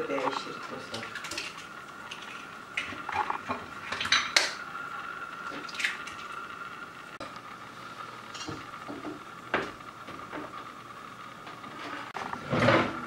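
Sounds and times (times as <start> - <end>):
eggs cracking against metal bowl: 0.3 - 4.6.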